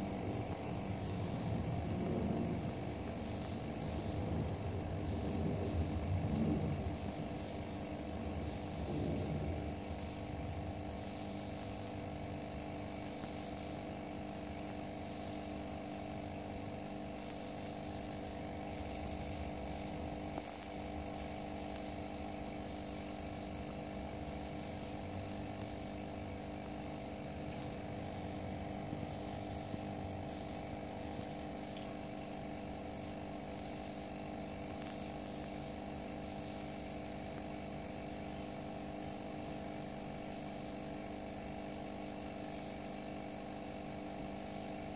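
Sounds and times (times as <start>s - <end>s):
insects chirping: 0.0s - 44.9s
low mechanical hum: 0.0s - 44.9s.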